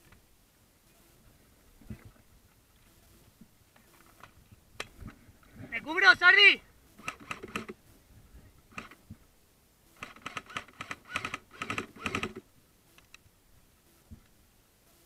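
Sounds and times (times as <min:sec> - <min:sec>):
airsoft gun firing bursts: 0:07.0 - 0:07.8, 0:10.0 - 0:12.4.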